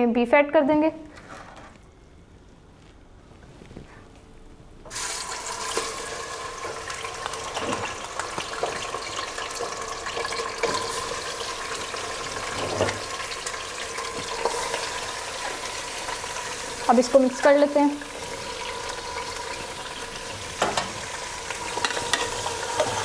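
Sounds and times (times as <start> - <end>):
meat sizzling in hot oil: 4.9 - 23.0.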